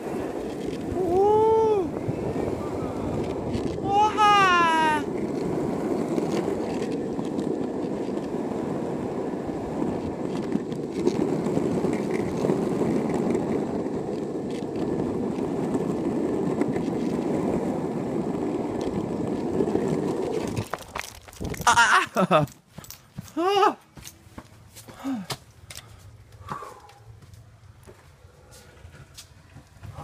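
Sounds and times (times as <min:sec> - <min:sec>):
skateboard clacks: 0:00.0 - 0:21.8
skateboard wheels rolling on asphalt: 0:00.0 - 0:30.0.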